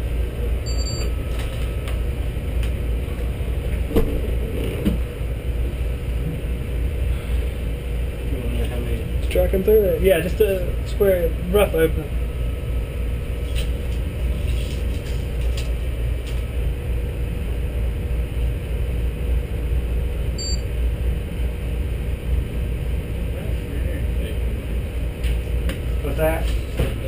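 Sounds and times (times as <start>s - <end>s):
machinery rumbling: 0.0s - 20.3s
faint hum: 0.0s - 27.0s.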